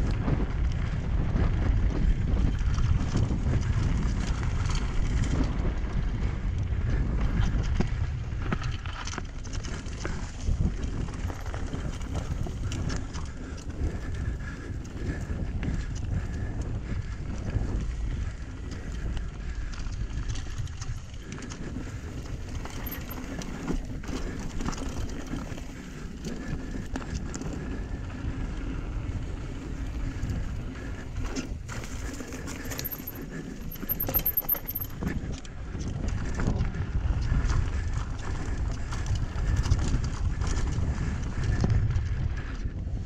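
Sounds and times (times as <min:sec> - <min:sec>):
wind rumble on microphone: 0:00.0 - 0:43.0
bike clicks and knocks: 0:17.6 - 0:27.8, 0:31.2 - 0:36.4.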